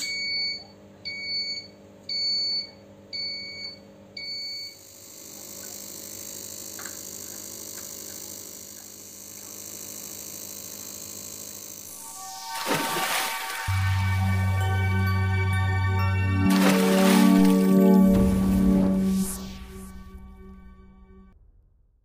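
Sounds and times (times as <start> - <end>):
generator high-pitched whine: 4.8 - 21.4.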